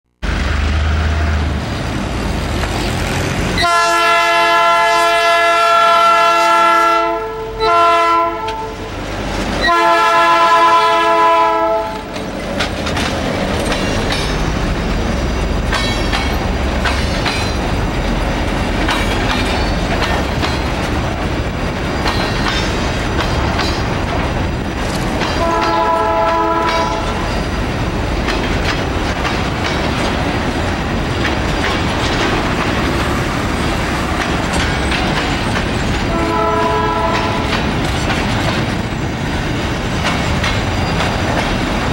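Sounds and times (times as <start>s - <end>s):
diesel locomotive engine running: 0.2s - 41.9s
locomotive horn: 3.6s - 9.0s, 9.6s - 12.1s, 25.3s - 27.3s, 36.0s - 37.6s
train wheels clattering over rail joints: 11.1s - 41.9s.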